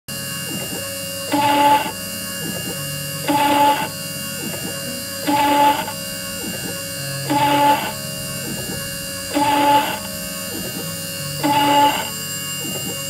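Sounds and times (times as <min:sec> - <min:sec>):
milling spindle whine: 0:00.1 - 0:13.0
cutter screeching on metal: 0:00.2 - 0:13.0.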